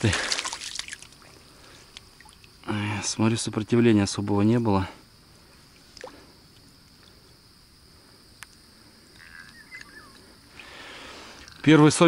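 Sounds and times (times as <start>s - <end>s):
water sloshing: 0.0s - 2.7s.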